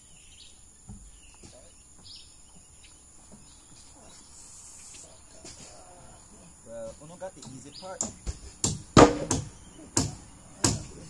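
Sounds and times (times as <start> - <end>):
bird chirps: 0.0 - 8.4
high insect buzz: 0.0 - 10.9
dull thud: 8.0 - 11.0.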